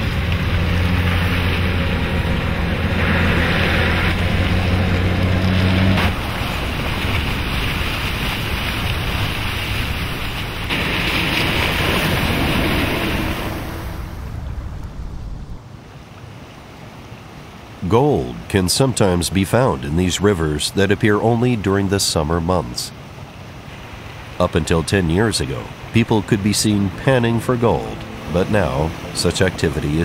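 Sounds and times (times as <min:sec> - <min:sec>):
low engine hum: 0:00.0 - 0:09.7, 0:24.4 - 0:30.0
tyres splashing through water: 0:00.0 - 0:14.4, 0:17.4 - 0:30.0.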